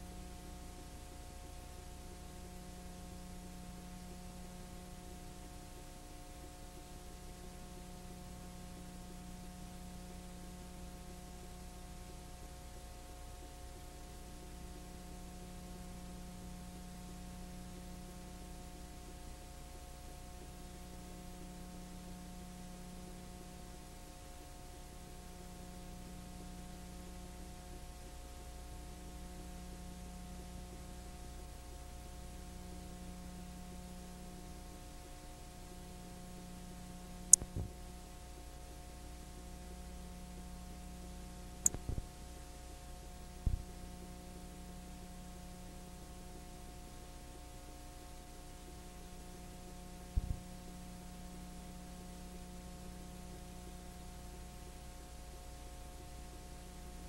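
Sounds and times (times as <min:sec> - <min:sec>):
electrical mains hum: 0:00.0 - 0:57.0
sharp clicks: 0:37.3 - 0:37.6.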